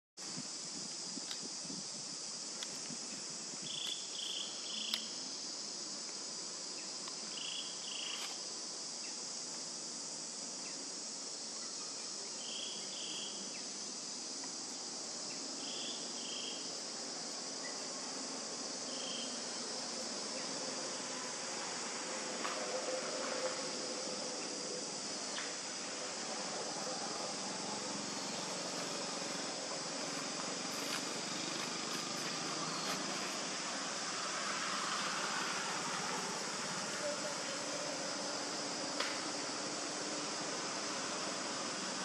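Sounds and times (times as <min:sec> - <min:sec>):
insect chorus: 0:00.2 - 0:42.0
short insect chirps: 0:02.5 - 0:05.4, 0:06.8 - 0:09.2.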